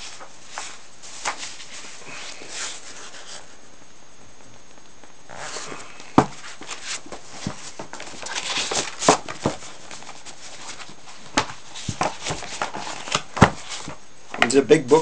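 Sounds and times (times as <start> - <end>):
paper pages rustling: 0.0 - 3.5, 5.4 - 14.0
knocks on book: 6.2 - 6.4, 11.3 - 14.0.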